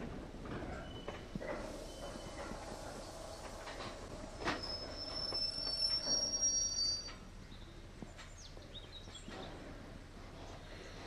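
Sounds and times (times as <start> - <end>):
wagons rumbling: 0.0 - 7.1
wheel flanges squealing: 1.7 - 7.3.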